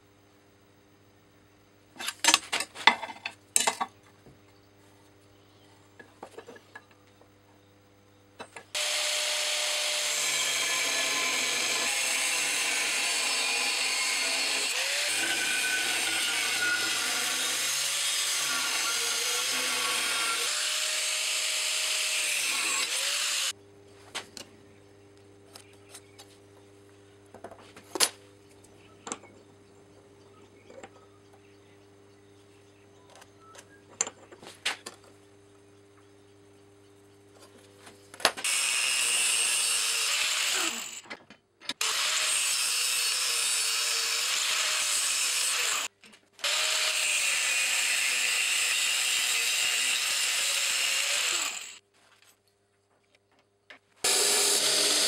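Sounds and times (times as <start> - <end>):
angle grinder cutting steel: 8.8 - 23.5, 38.4 - 41.0, 41.8 - 51.8, 54.0 - 55.0.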